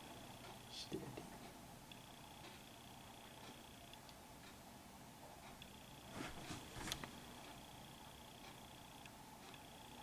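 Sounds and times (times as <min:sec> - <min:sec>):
faint ticks: 0:06.9 - 0:10.0.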